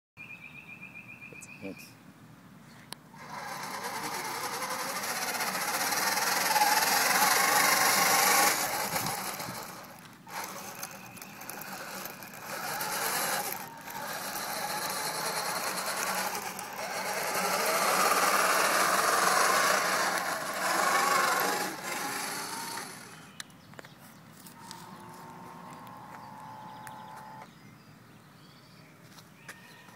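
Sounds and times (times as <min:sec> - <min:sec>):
toy tank motors and tracks: 0:03.2 - 0:23.4.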